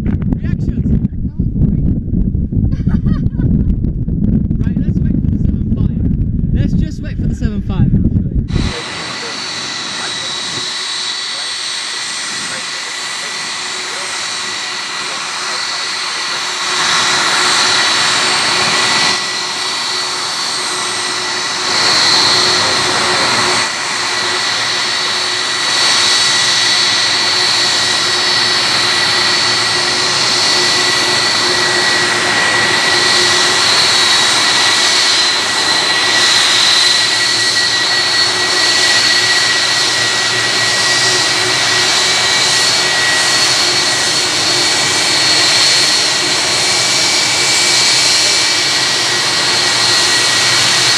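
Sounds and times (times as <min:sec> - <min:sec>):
jet engines at taxi power: 0:00.0 - 0:50.9.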